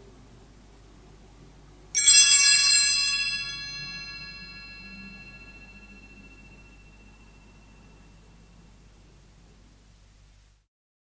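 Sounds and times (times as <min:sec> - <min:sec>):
bell jangling and ringing: 0:02.0 - 0:08.0.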